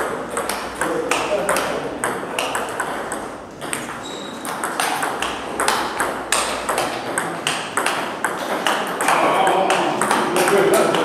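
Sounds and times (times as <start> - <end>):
table tennis ball hitting bats: 0.0 - 11.0.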